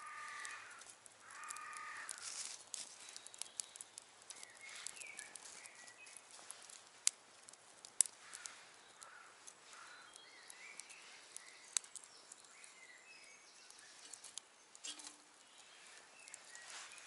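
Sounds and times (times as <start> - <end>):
fire crackling in a stove: 0.0 - 17.0
sharp wood snaps: 0.1 - 12.7, 13.6 - 15.2
faint bird chirps: 3.0 - 6.2, 8.3 - 17.0.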